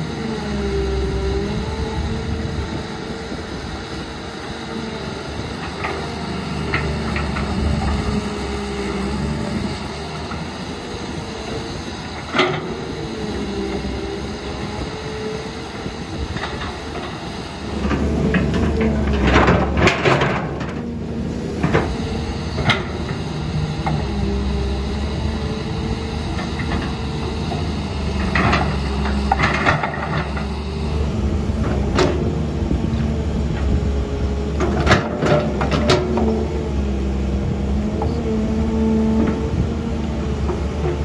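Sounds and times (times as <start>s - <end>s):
excavator diesel engine: 0.0s - 41.0s
excavator bucket clanking: 34.6s - 36.4s.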